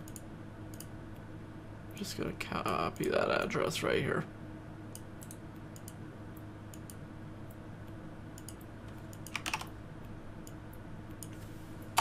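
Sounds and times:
faint steady hum: 0.0s - 12.0s
keyboard keystrokes: 8.4s - 9.7s.

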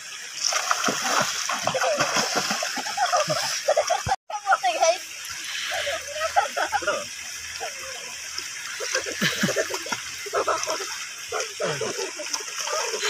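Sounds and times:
flowing water rushing: 0.0s - 13.0s
water splashing and sloshing: 0.0s - 13.0s
voices: 1.1s - 13.0s.

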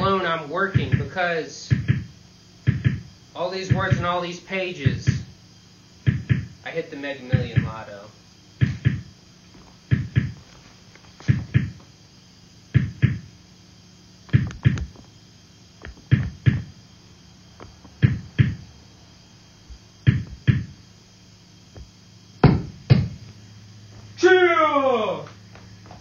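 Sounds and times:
electronic beat of low thuds: 0.0s - 4.2s, 4.8s - 5.4s, 6.0s - 6.6s, 7.2s - 8.0s, 8.6s - 10.5s, 11.2s - 11.9s, 12.7s - 13.3s, 14.3s - 15.1s, 15.8s - 16.8s, 17.6s - 18.7s, 19.6s - 20.9s, 21.8s - 23.3s.

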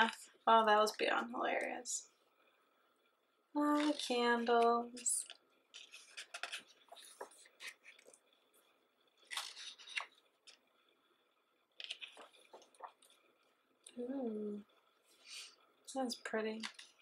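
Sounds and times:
book pages turning: 5.2s - 8.3s, 9.2s - 10.6s, 11.8s - 13.2s.

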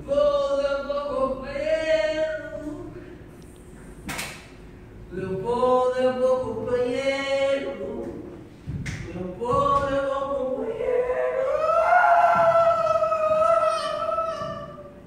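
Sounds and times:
person singing long notes: 9.1s - 15.0s.

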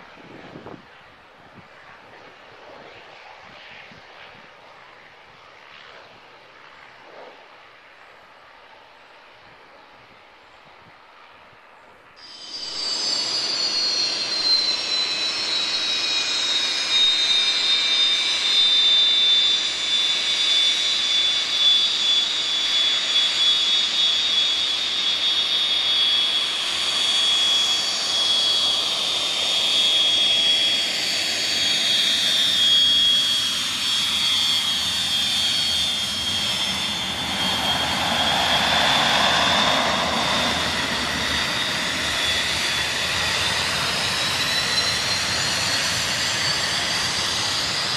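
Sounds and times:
jet roar: 0.0s - 11.4s, 12.2s - 47.9s
jet engine whining: 12.2s - 47.9s.

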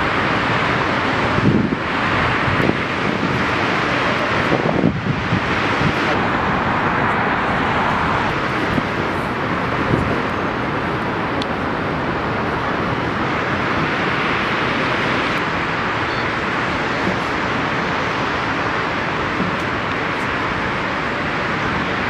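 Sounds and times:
distant city traffic: 0.0s - 22.0s
wind rushing: 1.3s - 10.8s.

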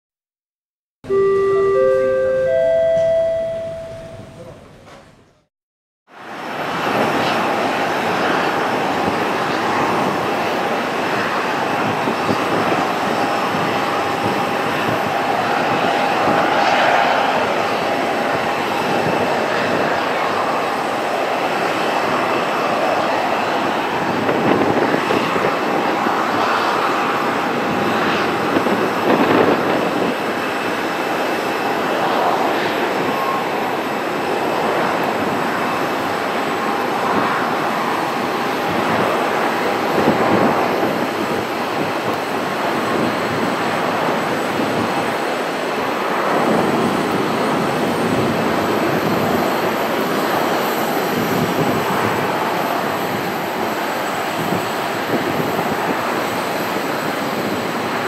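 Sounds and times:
jet engines rushing: 6.2s - 58.0s.

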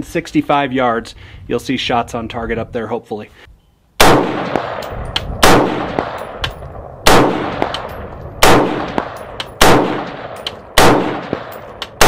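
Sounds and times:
rifle shots with echo: 4.0s - 12.0s.

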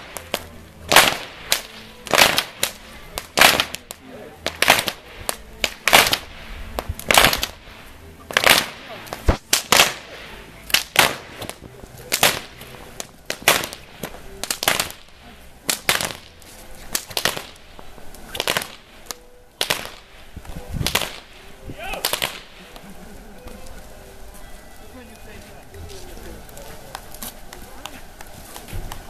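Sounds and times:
whips cracking: 0.0s - 23.0s.

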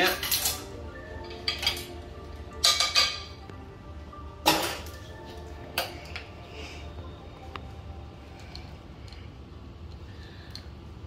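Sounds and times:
soft background music: 0.0s - 11.0s
spoon clinking on dishware: 2.6s - 3.4s.

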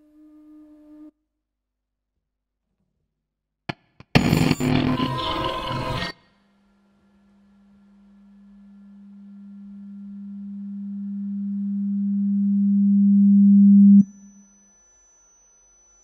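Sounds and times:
low sine tone: 0.0s - 1.1s, 7.3s - 16.0s.

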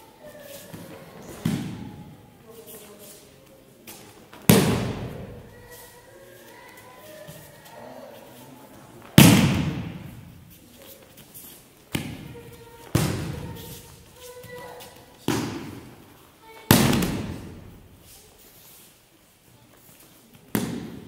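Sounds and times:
body slapping onto gym mats: 16.6s - 17.7s.

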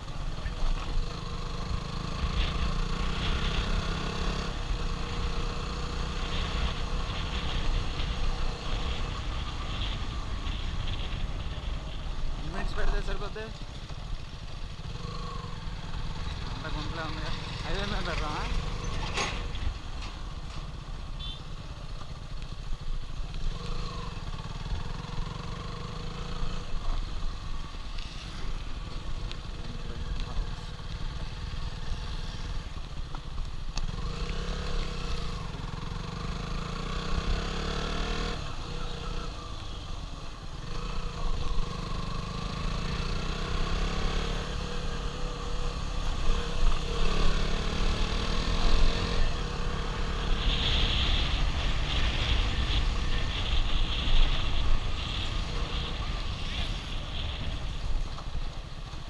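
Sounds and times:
motorcycle engine revving: 0.0s - 22.1s, 23.2s - 58.4s.

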